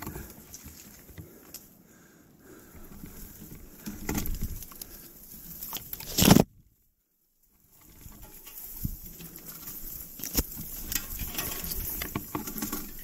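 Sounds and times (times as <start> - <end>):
footsteps through brush: 0.0 - 1.8, 7.5 - 13.0.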